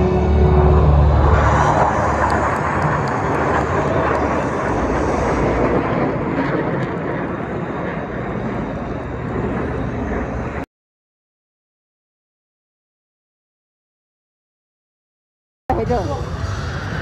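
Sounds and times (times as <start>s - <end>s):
music track: 0.0s - 6.2s
jet aircraft passing overhead: 0.0s - 10.7s, 15.7s - 17.0s.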